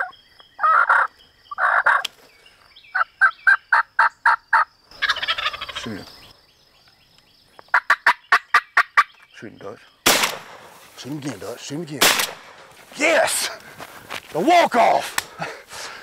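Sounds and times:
wild turkeys yelping: 0.0s - 2.1s, 2.9s - 6.4s, 7.7s - 9.2s.

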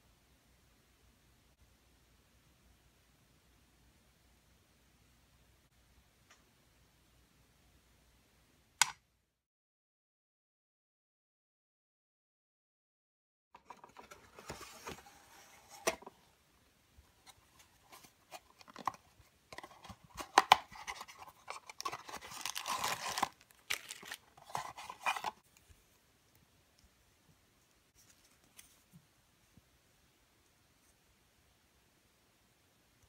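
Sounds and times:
cardboard rustling and scraping: 13.6s - 16.2s, 17.2s - 25.4s.

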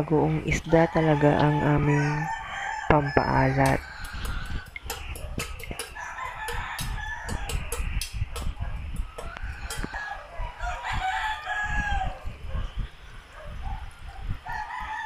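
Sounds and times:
rooster crowing: 0.7s - 8.0s, 8.6s - 12.6s, 14.4s - 15.0s
chickens clucking: 3.0s - 11.0s.

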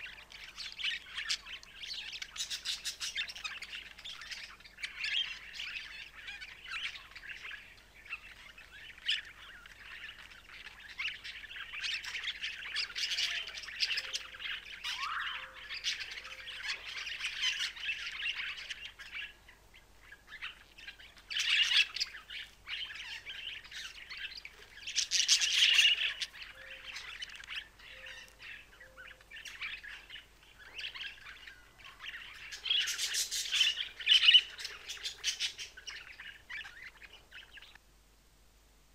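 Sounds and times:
budgerigars chirping: 0.0s - 37.8s
budgerigars squawking: 9.0s - 19.3s, 21.3s - 37.8s.

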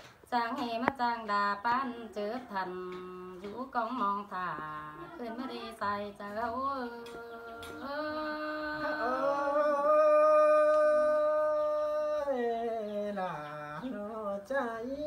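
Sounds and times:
woman singing long note: 6.8s - 11.2s.

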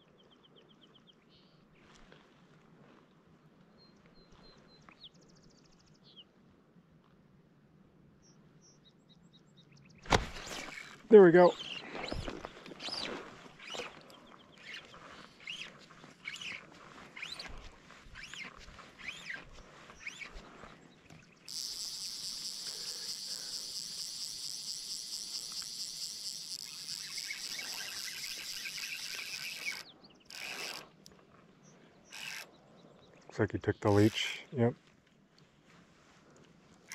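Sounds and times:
fishing line swishes: 10.0s - 11.0s, 11.8s - 20.6s, 21.5s - 30.9s
fishing reel buzzing: 12.0s - 20.4s, 21.1s - 31.2s, 32.1s - 32.5s, 33.8s - 34.4s.

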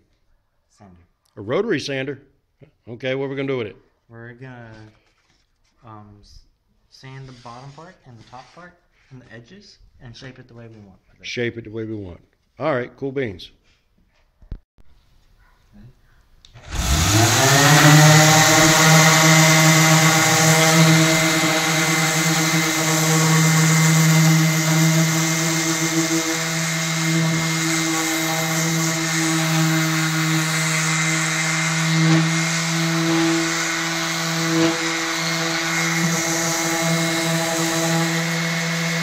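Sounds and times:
electric orbital sander running: 16.6s - 39.0s.

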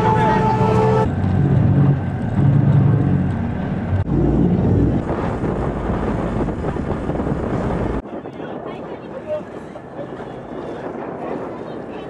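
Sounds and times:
boat engine running: 0.0s - 12.0s
wind buffeting microphone: 0.0s - 12.0s.

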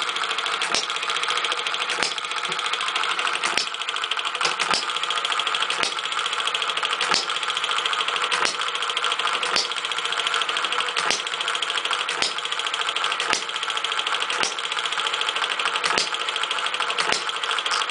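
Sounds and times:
engine mechanical clatter: 0.0s - 17.9s
engine firing pops: 0.6s - 1.0s, 1.9s - 2.6s, 3.4s - 3.8s, 4.4s - 5.0s, 5.7s - 6.0s, 7.0s - 7.4s, 8.3s - 8.7s, 9.4s - 9.8s, 11.0s - 11.4s, 12.0s - 12.4s, 13.2s - 13.6s, 14.3s - 14.6s, 15.8s - 16.2s, 17.0s - 17.9s.

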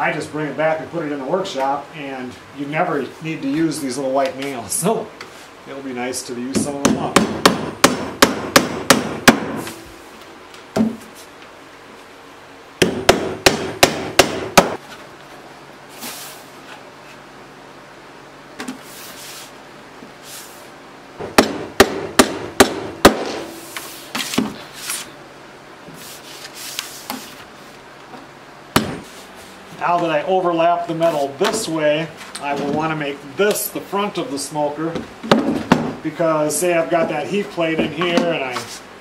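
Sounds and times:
hammer driving nails through metal: 6.6s - 9.8s, 12.8s - 14.8s, 21.4s - 23.6s.

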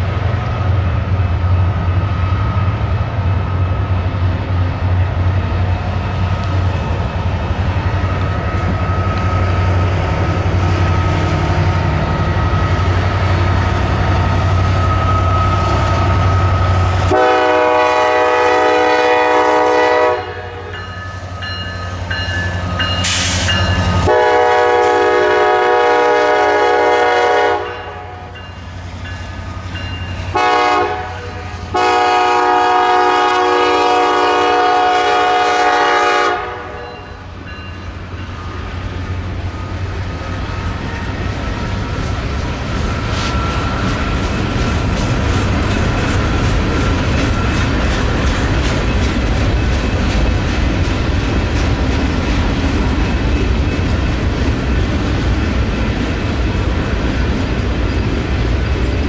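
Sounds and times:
freight locomotive rumbling: 0.0s - 59.0s
locomotive air horn blasts: 17.0s - 20.7s, 24.0s - 28.2s, 30.3s - 36.9s.

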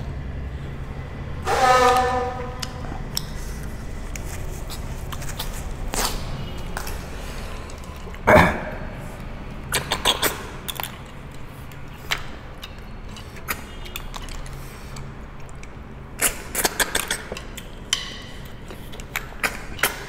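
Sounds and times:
honk-like tone: 1.4s - 2.8s.

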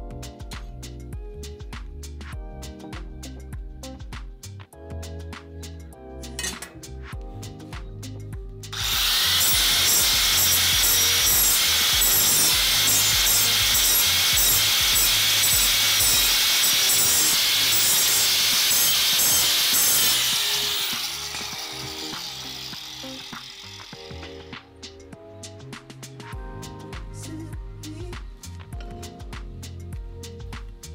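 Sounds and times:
angle grinder cutting metal: 8.8s - 24.8s.

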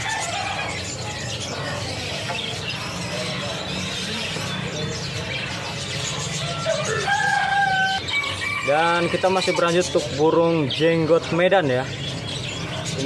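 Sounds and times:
caged songbirds chirping: 0.0s - 13.0s.

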